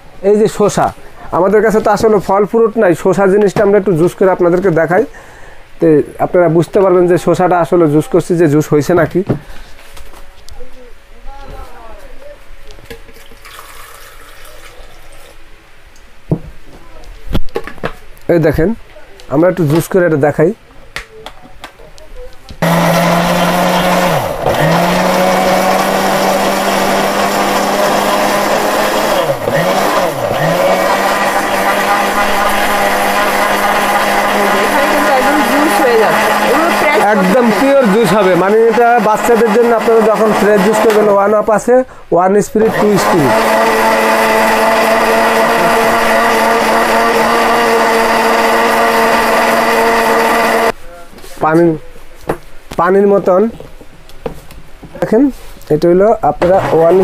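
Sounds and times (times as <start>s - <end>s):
electric blender running: 22.6s - 41.2s, 42.6s - 50.8s, 56.4s - 57.0s.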